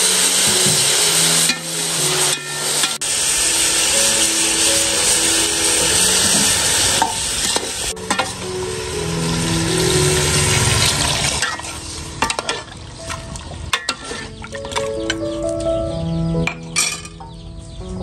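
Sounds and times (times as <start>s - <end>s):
meat sizzling in a pot: 0.0s - 12.7s
ladle clinking against pot: 13.8s - 15.2s.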